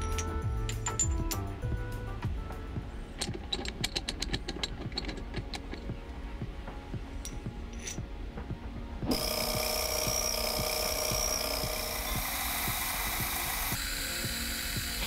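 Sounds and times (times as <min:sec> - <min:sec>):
machine ticking: 0:09.0 - 0:15.0
milling cutter whining on metal: 0:09.0 - 0:15.0.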